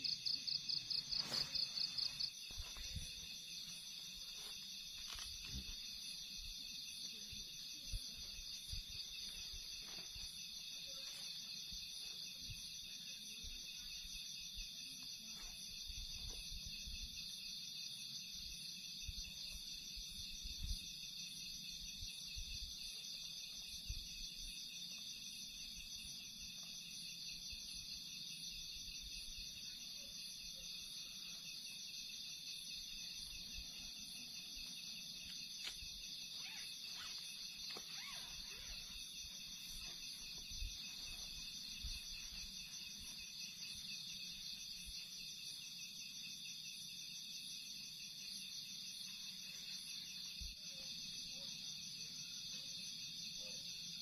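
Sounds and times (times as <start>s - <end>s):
crickets and insects trilling: 0.0s - 54.0s
tent thumps and rustles: 0.9s - 6.0s, 35.6s - 43.0s.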